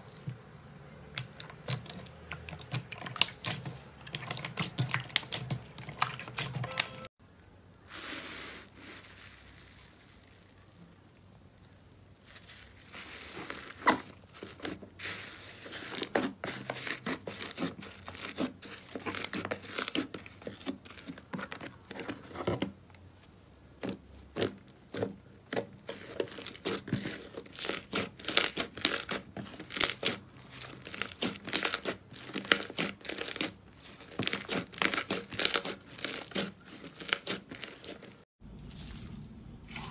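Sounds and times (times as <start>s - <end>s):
slime squelching and popping: 1.1s - 7.0s, 23.7s - 39.9s.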